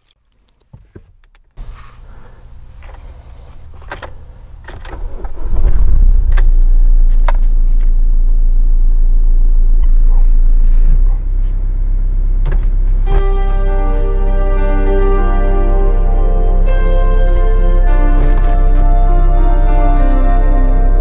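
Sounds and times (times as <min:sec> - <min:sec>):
diesel engine starting and idling: 0:01.6 - 0:21.0.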